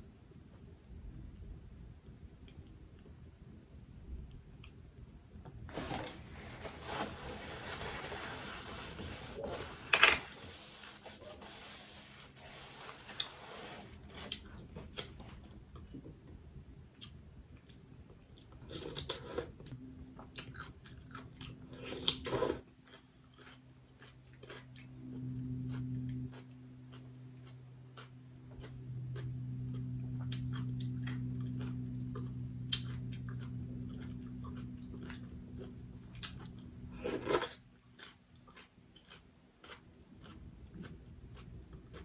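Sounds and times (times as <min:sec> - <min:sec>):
low steady hum: 0:00.0 - 0:42.0
chewing: 0:17.0 - 0:42.0.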